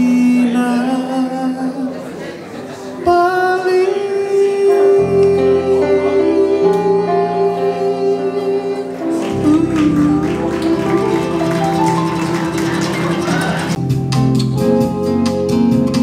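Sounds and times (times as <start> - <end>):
keyboard chords: 3.1 - 16.0
acoustic guitar playing: 5.4 - 16.0.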